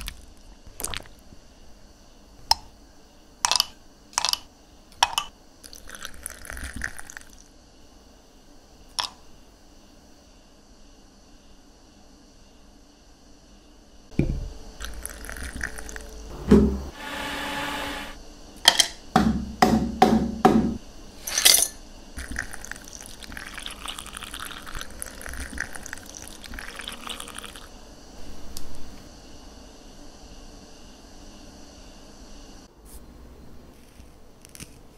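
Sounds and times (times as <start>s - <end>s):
liquid pouring over ice: 0.0s - 1.2s, 5.6s - 7.4s, 14.8s - 16.1s, 22.2s - 27.7s
ice clinking in a glass: 21.3s - 27.6s.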